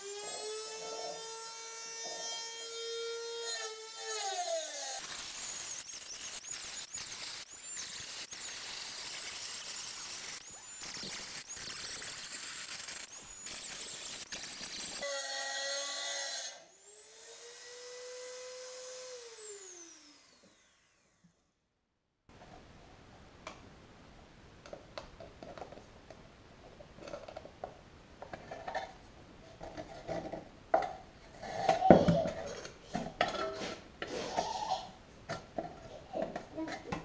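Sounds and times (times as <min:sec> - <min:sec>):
rotary tool whine: 0:00.0 - 0:21.4.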